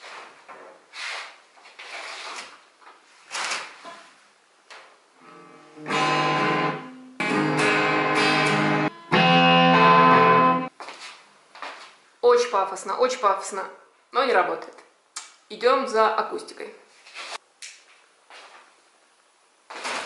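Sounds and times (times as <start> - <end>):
electric guitar chords ringing: 5.2 - 10.7
quiet scratchy guitar strums: 5.2 - 10.7.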